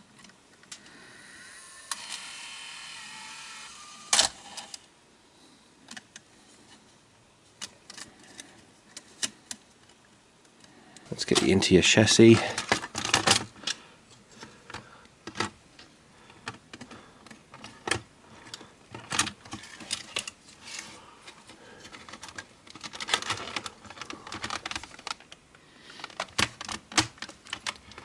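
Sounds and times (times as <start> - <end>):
plastic and metal parts clicking: 7.6 - 11.5, 12.3 - 13.8, 14.4 - 28.0.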